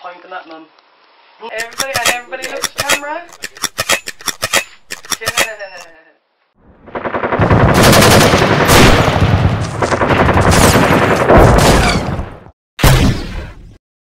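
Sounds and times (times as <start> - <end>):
rapid automatic gunfire: 6.8 - 11.7.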